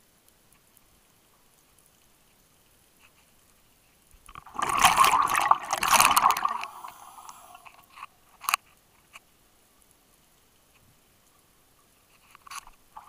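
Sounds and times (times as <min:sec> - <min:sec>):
scuba exhaust bubbles rushing: 0:04.4 - 0:07.6.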